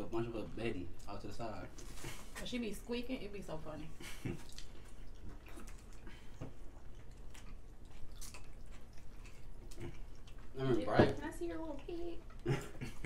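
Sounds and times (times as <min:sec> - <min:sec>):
people chewing: 0:01.0 - 0:02.4, 0:03.9 - 0:13.0
wet smacks and clicks: 0:04.4 - 0:10.4.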